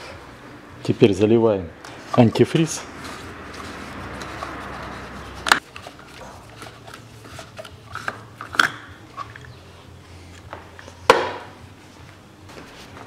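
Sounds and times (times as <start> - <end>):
plastic cap scraping: 3.0 - 9.5.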